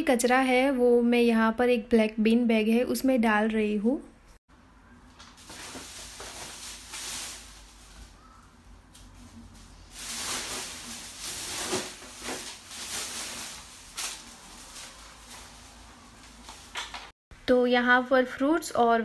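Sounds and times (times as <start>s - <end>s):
plastic bin bag rustling: 5.2s - 8.2s, 8.9s - 17.1s.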